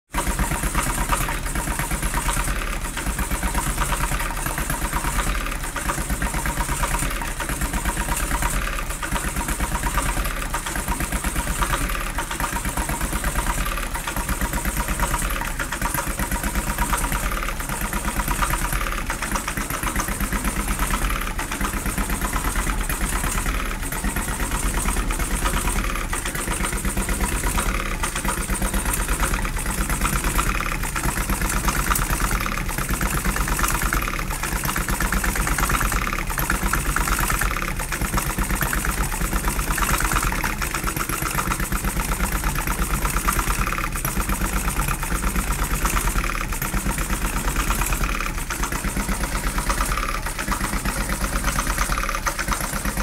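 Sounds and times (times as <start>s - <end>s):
model engine running: 0.1s - 53.0s.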